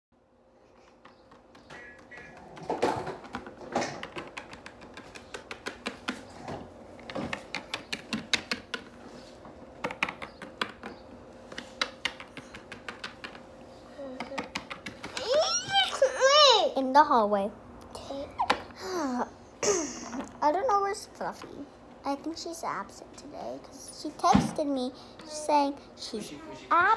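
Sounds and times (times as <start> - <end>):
plastic figures tapping on stone: 1.0 - 6.2, 11.8 - 13.4, 14.2 - 15.3.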